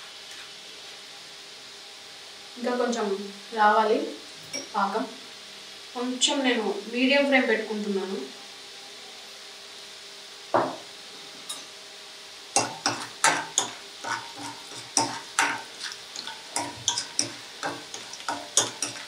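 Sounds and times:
faint frying sizzle: 0.0 - 19.0
ladle knocking and scraping wok: 12.6 - 19.0.

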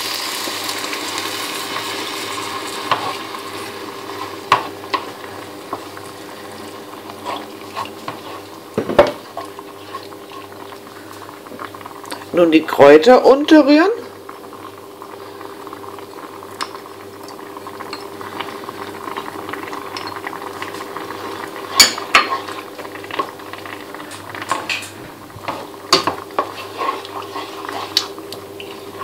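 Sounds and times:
sauce bubbling: 0.0 - 29.0
spoon knocking and scraping pan: 2.8 - 3.2, 4.2 - 5.9, 7.1 - 10.1, 21.7 - 29.0
spoon stirring sauce in pan: 7.0 - 10.8, 19.1 - 29.0.

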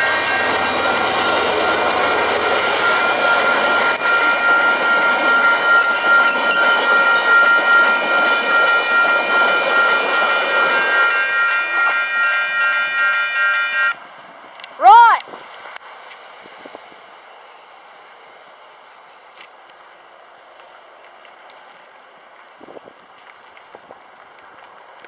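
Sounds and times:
crossing bells ringing: 0.0 - 14.0
passenger train passing: 0.0 - 25.0.

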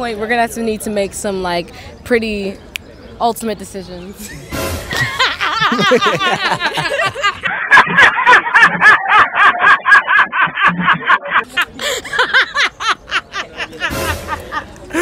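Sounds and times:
hearty human laughter: 4.2 - 15.0.

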